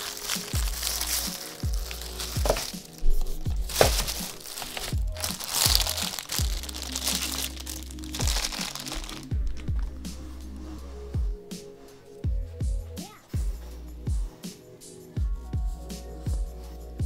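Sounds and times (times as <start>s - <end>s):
packaging crinkling: 0.0s - 9.9s
music with deep bass kicks: 0.0s - 11.6s, 12.2s - 17.0s.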